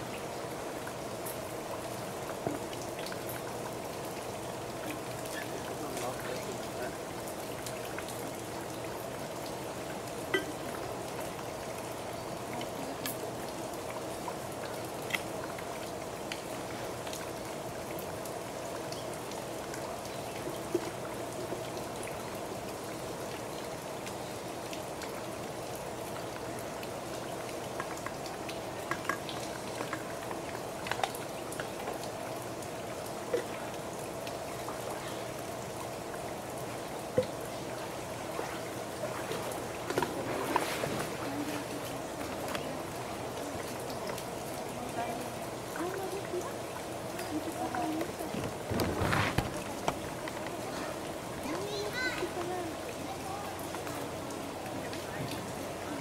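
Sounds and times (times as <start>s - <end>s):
drip-like ticks: 0.1s - 37.8s
water splashing: 33.3s - 56.0s.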